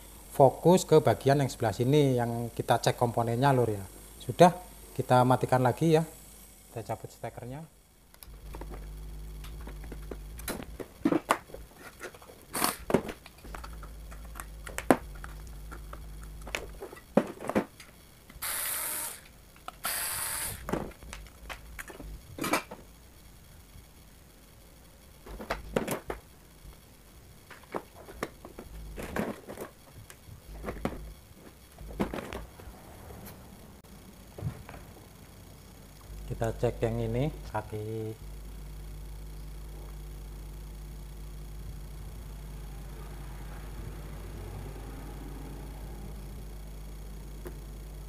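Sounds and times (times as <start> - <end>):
electric screwdriver whirring: 12.5 - 14.9, 18.3 - 20.8.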